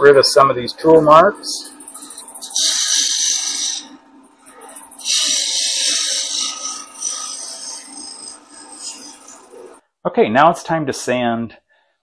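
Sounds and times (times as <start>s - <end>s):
wood lathe running: 1.5s - 9.8s
scraper cutting wood on lathe: 1.6s - 9.8s.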